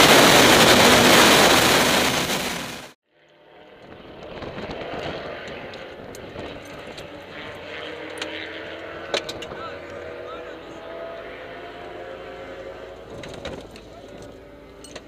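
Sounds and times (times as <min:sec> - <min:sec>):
wind noise: 0:00.0 - 0:02.8, 0:03.8 - 0:07.6
race car engine at speed: 0:00.0 - 0:15.0.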